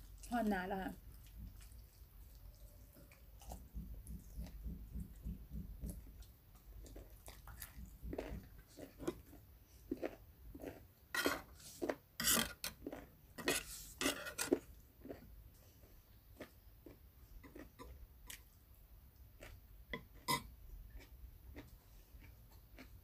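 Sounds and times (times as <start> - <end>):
chewing: 0.0 - 23.0
metal spoon scraping a plate: 11.1 - 12.8, 13.4 - 14.6.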